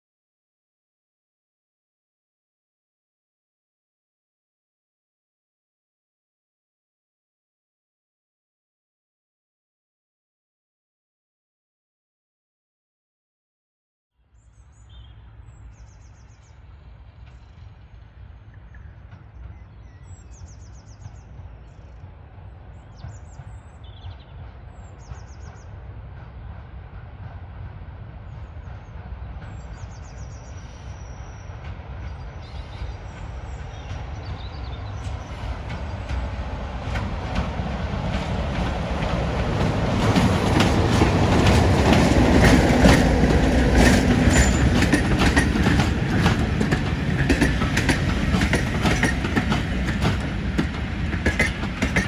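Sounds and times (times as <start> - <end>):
locomotive engine rumbling: 15.3 - 52.0
wheels clicking over rail joints: 35.7 - 52.0.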